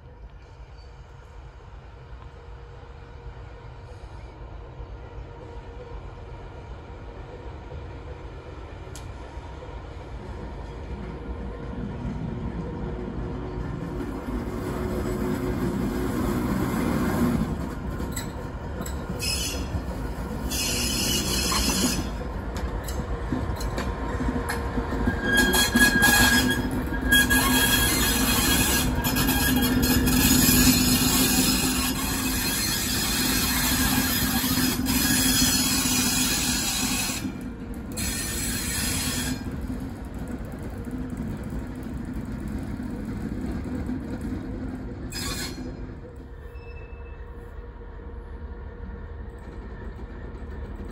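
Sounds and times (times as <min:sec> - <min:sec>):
train wheels rumbling: 0:00.0 - 0:50.9
wheel squeal: 0:18.1 - 0:22.2, 0:25.0 - 0:37.3, 0:38.0 - 0:39.6, 0:45.1 - 0:47.4.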